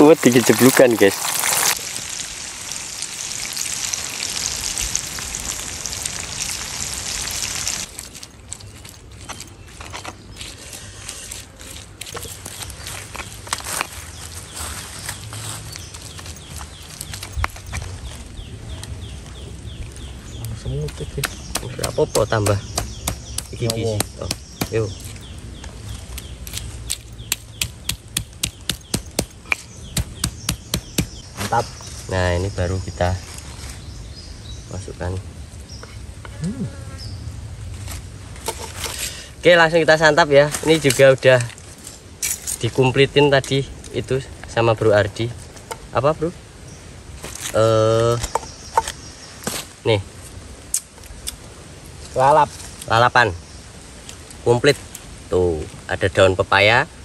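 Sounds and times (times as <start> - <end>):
food sizzling in hot oil: 0.0 - 7.9
oil crackles: 0.0 - 14.4
pestle pounding in stone mortar: 20.8 - 25.0, 27.2 - 31.2.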